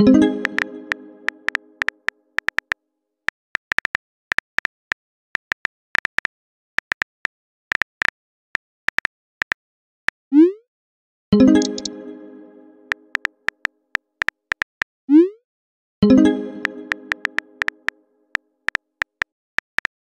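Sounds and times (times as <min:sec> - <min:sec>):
phone keyboard key clicks: 0:01.5 - 0:02.8, 0:03.6 - 0:08.1, 0:13.1 - 0:14.9, 0:17.1 - 0:17.8, 0:18.7 - 0:20.0.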